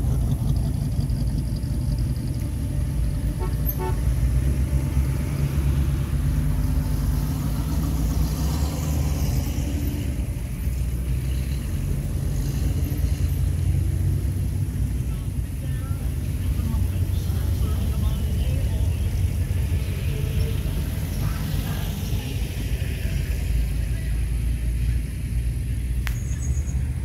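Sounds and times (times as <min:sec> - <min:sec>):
car engines rumbling past: 0:00.0 - 0:27.0
short car horn toot: 0:03.4 - 0:04.1.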